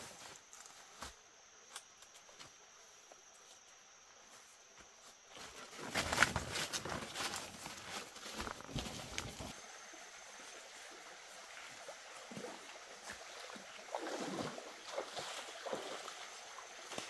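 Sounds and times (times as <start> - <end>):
faint high insect drone: 0.0 - 17.0
footsteps through undergrowth: 4.2 - 9.6.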